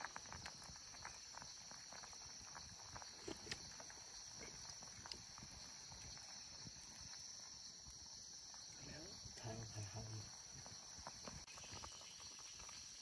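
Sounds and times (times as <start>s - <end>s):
high-pitched insect drone: 0.7s - 13.0s.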